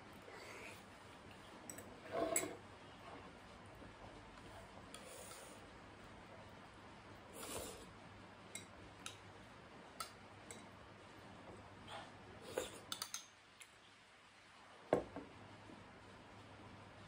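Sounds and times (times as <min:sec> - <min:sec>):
bowl knocking on wooden table: 0:14.9 - 0:15.3.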